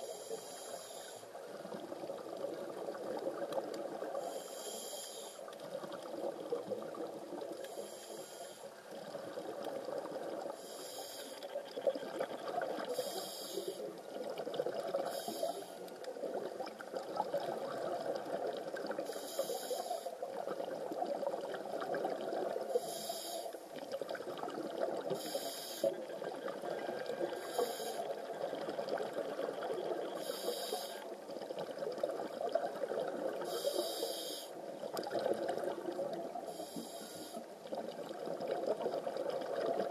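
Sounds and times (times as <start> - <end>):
hissing regulator inhalations: 0.0 - 1.3, 4.2 - 5.4, 7.6 - 8.7, 10.6 - 11.4, 12.9 - 13.9, 15.0 - 15.9, 19.0 - 20.1, 22.7 - 23.6, 25.2 - 25.9, 27.4 - 28.1, 30.2 - 31.0, 33.5 - 34.5, 36.5 - 37.5.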